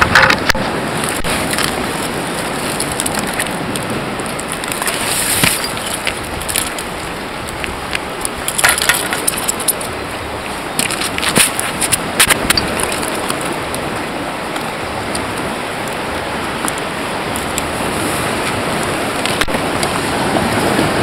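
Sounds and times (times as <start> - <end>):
sharp clicks and crackles: 0.0 - 10.0, 10.8 - 13.8, 19.2 - 19.9
surf washing over rocks: 0.0 - 21.0.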